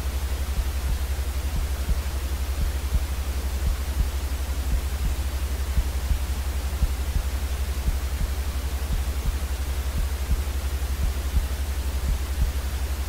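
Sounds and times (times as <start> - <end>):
white noise hiss: 0.0 - 13.0.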